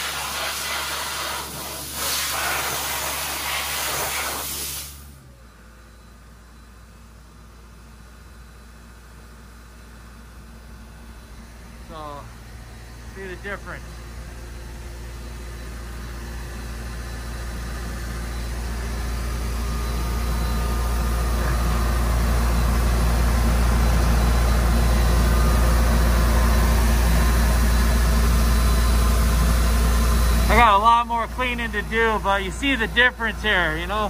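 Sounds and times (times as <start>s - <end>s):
broad rushing hiss: 0.0s - 5.0s
deep machine hum: 10.3s - 34.0s.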